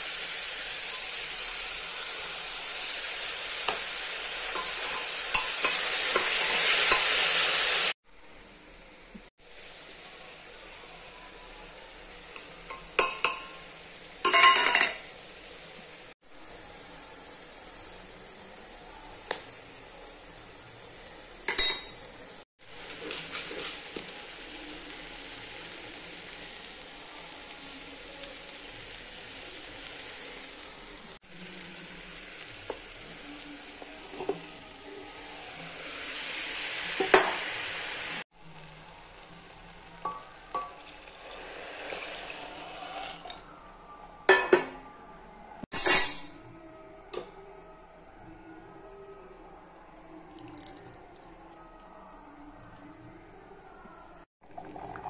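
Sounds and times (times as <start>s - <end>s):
vegetables sizzling in pot: 0.0s - 44.5s
metal spoon clinking on pot: 14.2s - 15.0s, 21.5s - 22.0s
spoon scraping pot: 22.9s - 23.9s.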